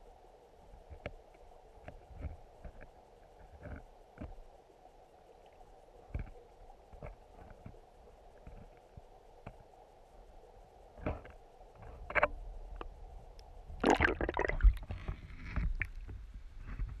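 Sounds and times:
water sloshing and splashing: 13.7 - 16.9.

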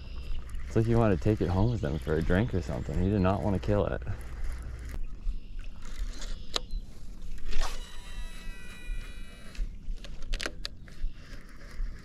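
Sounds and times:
reel clicks re-engaging: 5.9 - 6.7, 7.4 - 12.0
reel spool release click: 6.2 - 6.7
spinning spool whine: 7.4 - 9.7.

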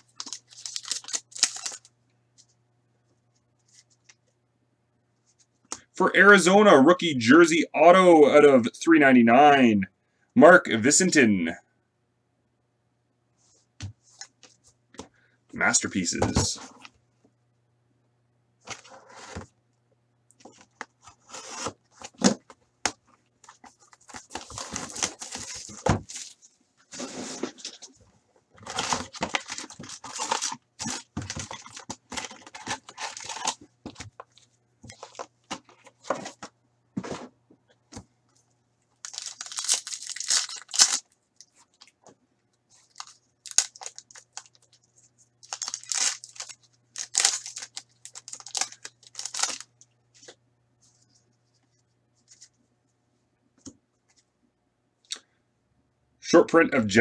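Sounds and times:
packaging tearing and crinkling: 0.0 - 1.9, 23.9 - 26.4, 28.6 - 33.6, 39.0 - 41.9, 42.8 - 44.8, 45.4 - 49.8.

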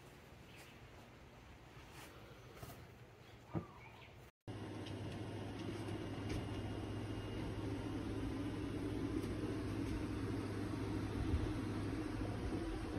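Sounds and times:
low hum: 4.5 - 12.9.

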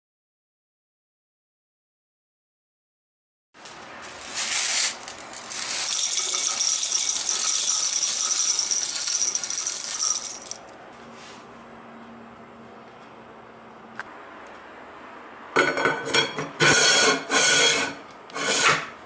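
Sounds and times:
berries rattling in steel bowl: 3.6 - 10.6.

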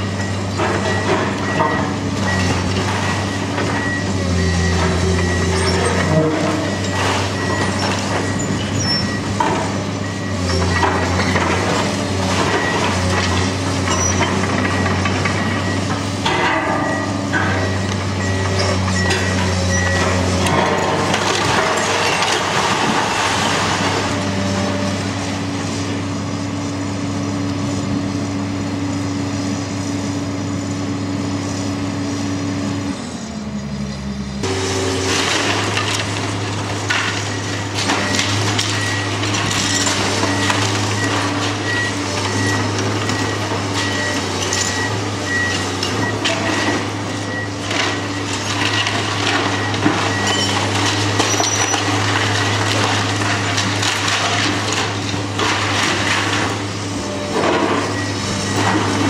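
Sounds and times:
excavator diesel engine under load: 0.0 - 59.0
bricks and rubble falling: 18.4 - 24.2, 34.9 - 45.0, 45.9 - 56.7.

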